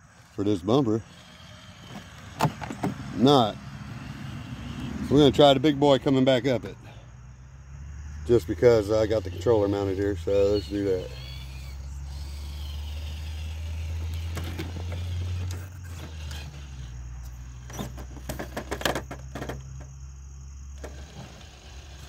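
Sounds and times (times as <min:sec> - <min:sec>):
tyres clicking and scraping on plastic: 0:12.1 - 0:19.9, 0:20.8 - 0:22.0.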